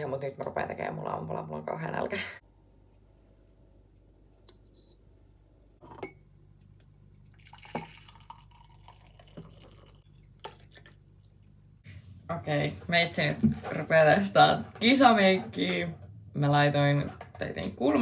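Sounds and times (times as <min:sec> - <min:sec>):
coffee pouring into a mug: 0:07.2 - 0:11.8.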